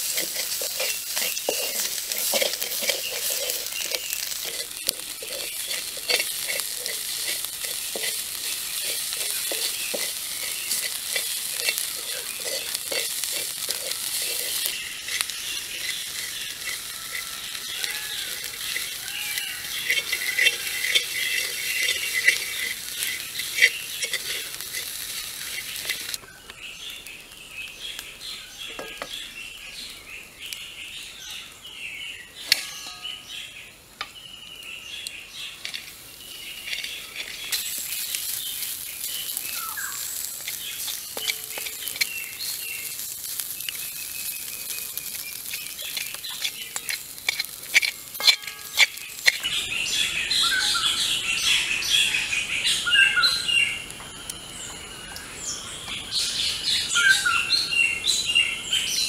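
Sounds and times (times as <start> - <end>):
stick clicking on pan: 0.0 - 26.2, 35.6 - 49.5
stick scraping a metal wok: 0.0 - 26.2, 32.4 - 33.4, 35.4 - 49.6
food sizzling: 0.0 - 31.1, 32.3 - 57.4
birds chirping: 0.0 - 59.0.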